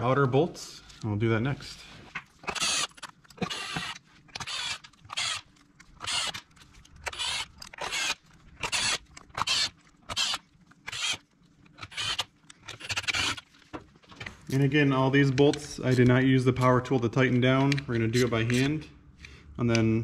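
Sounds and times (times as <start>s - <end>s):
cordless driver bursts: 2.4s - 6.4s.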